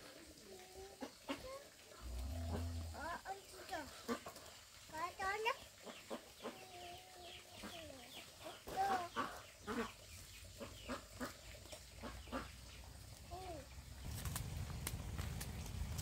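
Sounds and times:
chickens clucking: 0:05.8 - 0:12.8.

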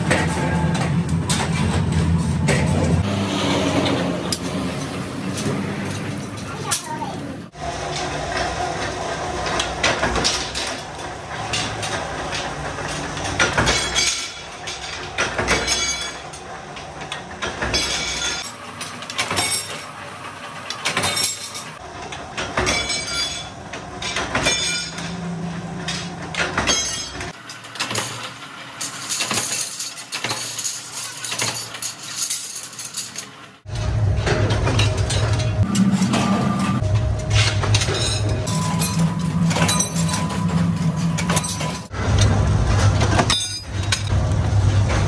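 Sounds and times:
power press clanking: 0:07.9 - 0:20.0, 0:20.6 - 0:31.9, 0:34.2 - 0:44.1
metal pieces clinking: 0:27.9 - 0:33.4, 0:37.8 - 0:41.9.

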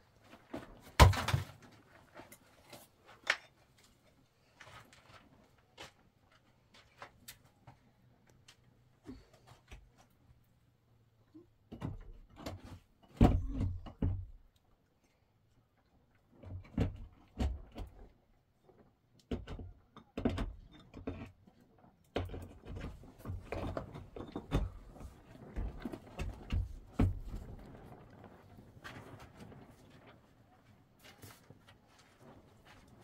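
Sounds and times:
knocks and thuds: 0:00.9 - 0:01.6, 0:13.1 - 0:14.4, 0:22.2 - 0:27.7.

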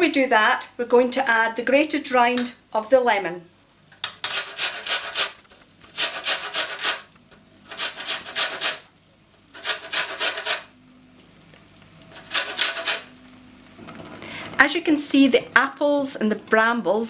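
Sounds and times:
lemon rind grated on metal grater: 0:04.2 - 0:08.9, 0:09.5 - 0:10.7, 0:12.1 - 0:13.1.

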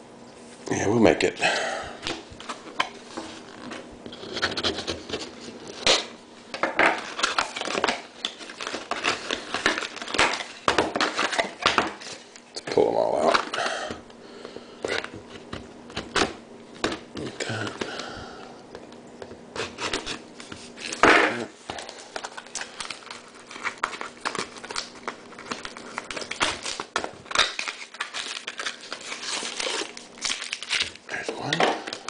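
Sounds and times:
foil wrappers crinkling: 0:06.9 - 0:13.8, 0:19.6 - 0:32.0.

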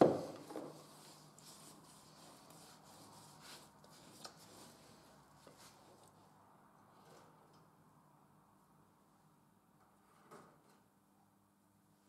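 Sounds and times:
stick stirring in plastic bucket: 0:00.0 - 0:06.1.

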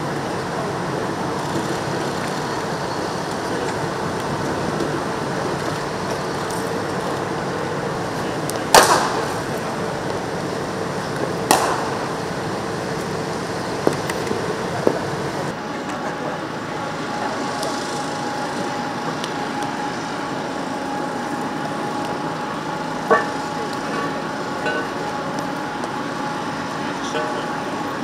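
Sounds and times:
steady background hum: 0:00.0 - 0:28.0
cricket ball struck by bat: 0:08.7 - 0:09.3, 0:11.5 - 0:11.9.

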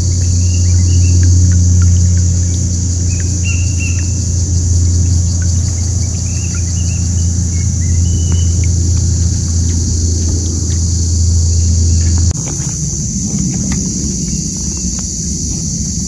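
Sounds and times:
bird chirps: 0:00.0 - 0:15.2
high insect buzz: 0:00.0 - 0:16.0
low hum: 0:00.0 - 0:16.0.

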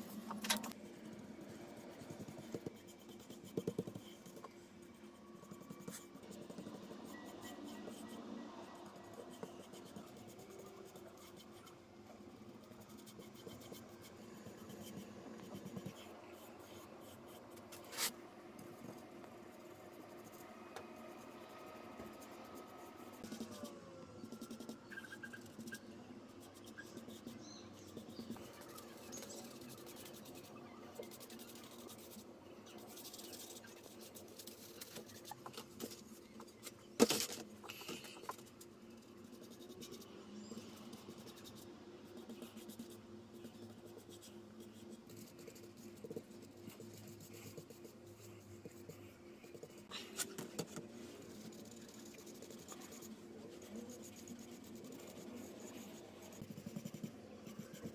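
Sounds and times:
faint steady hum: 0:00.0 - 0:57.9
paintbrush scraping on wood: 0:14.6 - 0:18.2.

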